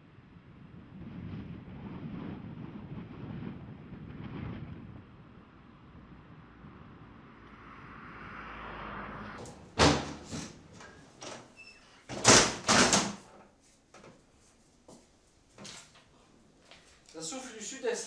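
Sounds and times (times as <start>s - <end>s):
wind over water: 0.0s - 10.7s
windows banging and rattling: 9.4s - 14.2s.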